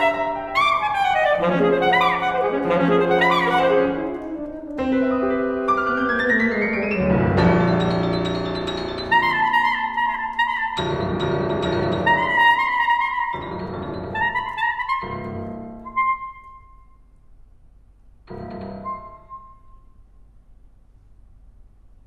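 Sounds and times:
alto saxophone: 0:00.0 - 0:05.5, 0:09.0 - 0:11.2, 0:11.9 - 0:16.4
piano chords: 0:00.0 - 0:17.2, 0:18.2 - 0:20.5.

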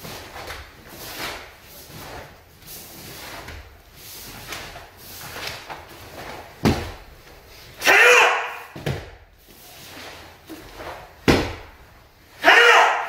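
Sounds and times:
bare feet thudding on mats: 0:03.0 - 0:07.6, 0:08.7 - 0:12.0.

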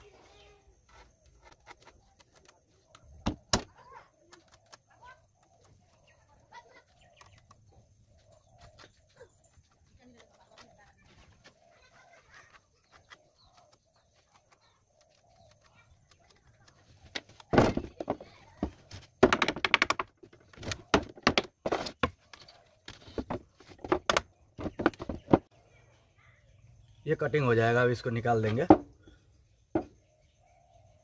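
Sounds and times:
hammer knocking on wooden frame: 0:29.8 - 0:30.0.

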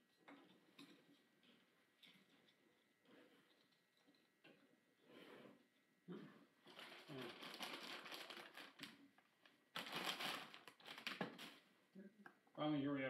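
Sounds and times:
plastic packaging crinkling: 0:06.6 - 0:11.7.

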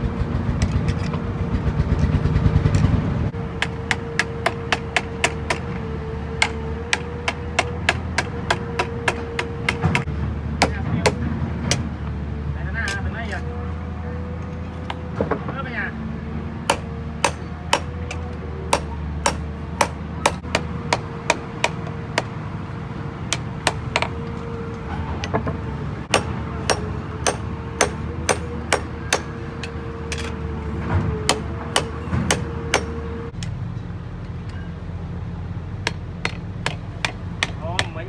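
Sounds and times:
hammer striking metal on anvil: 0:16.7 - 0:22.3, 0:26.1 - 0:29.8, 0:31.3 - 0:33.0.

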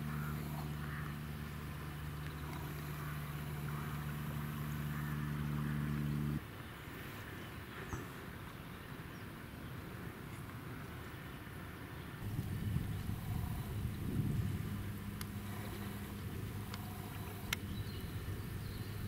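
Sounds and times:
low motor hum: 0:00.0 - 0:06.8, 0:12.2 - 0:19.0
outdoor background noise: 0:00.0 - 0:19.0.

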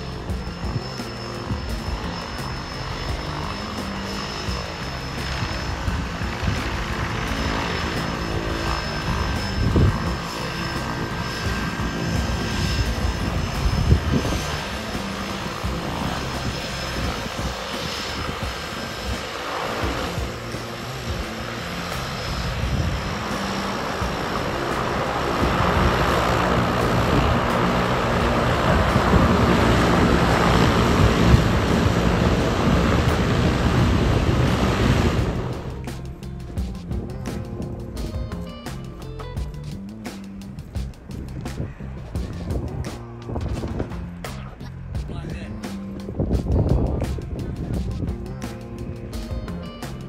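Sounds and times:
floatplane engine and propeller: 0:00.0 - 0:50.0.

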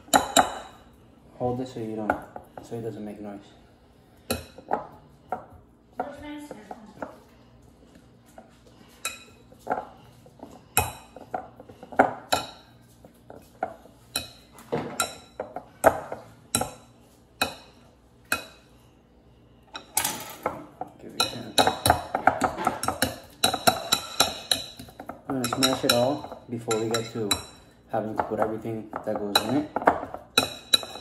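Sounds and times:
metal masher clinking on glass bowl: 0:22.8 - 0:27.6.

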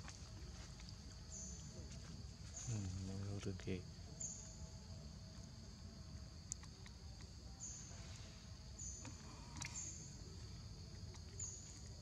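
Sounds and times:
insect chirp: 0:00.0 - 0:12.0
insects buzzing: 0:00.0 - 0:12.0
faint clicks: 0:06.4 - 0:07.3.

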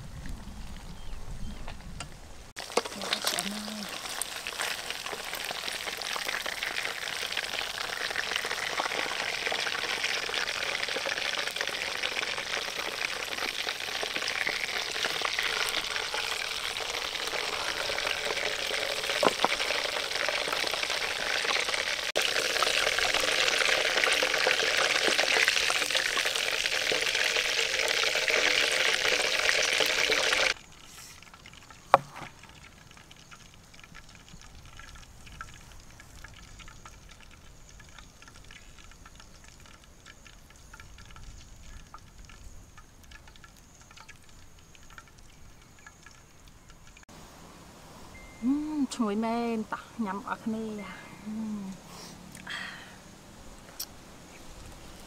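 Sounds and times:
oil sizzling in wok: 0:02.6 - 0:32.0.

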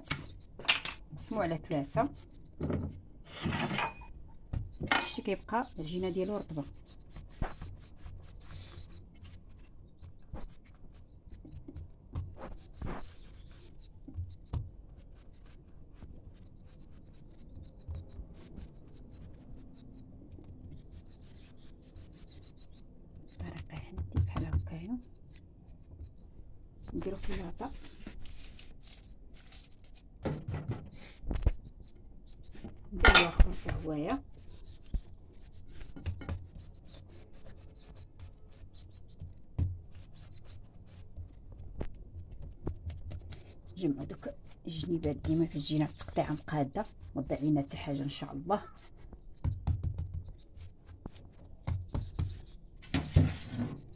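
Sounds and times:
hands rubbing and slapping dough: 0:05.2 - 0:17.0, 0:34.8 - 0:52.6
hands rolling dough on countertop: 0:05.9 - 0:17.1.

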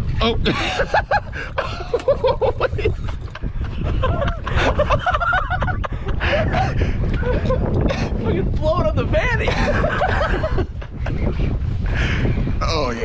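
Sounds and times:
men laughing: 0:00.2 - 0:08.2, 0:09.3 - 0:12.4
men's excited voices: 0:07.6 - 0:10.6.

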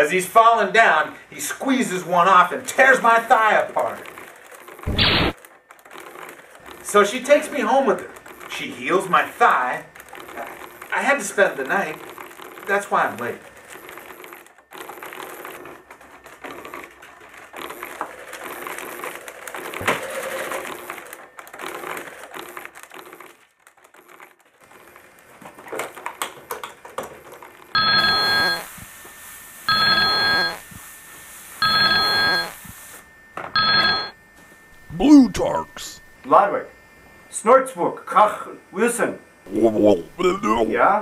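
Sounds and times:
telephone ringing: 0:27.7 - 0:28.8, 0:29.7 - 0:30.8, 0:31.6 - 0:32.7, 0:33.5 - 0:34.2, 0:34.8 - 0:36.2.

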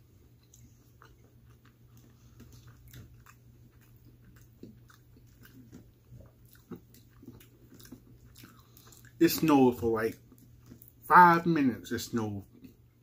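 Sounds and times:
faint chewing: 0:00.0 - 0:11.1, 0:12.0 - 0:13.0
steady low hum: 0:00.0 - 0:13.0.

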